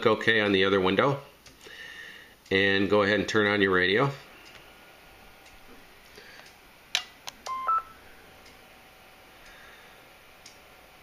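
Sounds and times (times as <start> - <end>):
two-note electronic beep: 7.5 - 8.0
light tick: 10.4 - 10.6.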